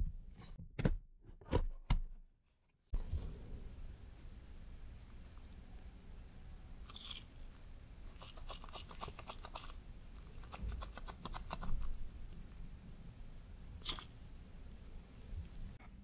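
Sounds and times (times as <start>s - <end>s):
sticky dough crackling: 13.8s - 14.5s.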